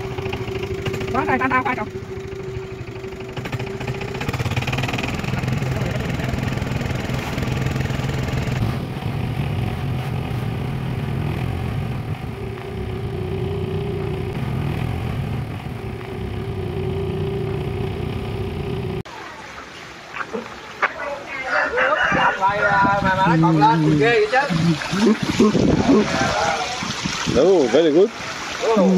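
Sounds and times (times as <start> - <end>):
motorboat engine running: 0.0 - 19.1
water rushing: 0.0 - 28.9
wind: 0.0 - 28.9.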